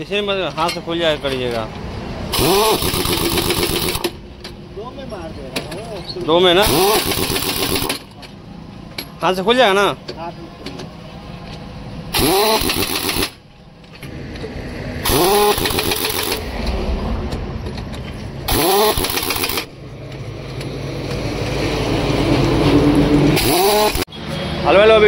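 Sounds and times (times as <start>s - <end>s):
pneumatic impact wrench: 2.3s - 4.2s, 6.6s - 8.2s, 12.1s - 13.4s, 15.0s - 16.5s, 18.5s - 19.7s, 23.3s - 24.2s.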